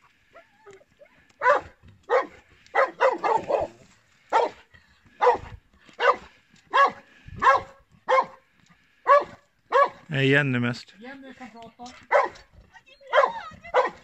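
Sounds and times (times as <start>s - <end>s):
dog barking: 1.4s - 4.6s, 5.2s - 8.4s, 9.0s - 10.1s, 12.1s - 12.4s, 13.1s - 14.0s.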